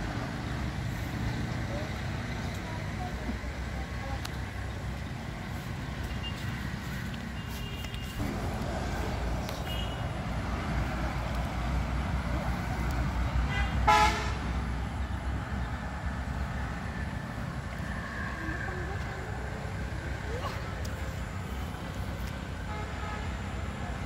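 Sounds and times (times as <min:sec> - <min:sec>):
low outdoor background rumble: 0:00.0 - 0:24.0
vehicle horn toot: 0:07.4 - 0:08.2, 0:09.6 - 0:10.0, 0:13.5 - 0:14.4.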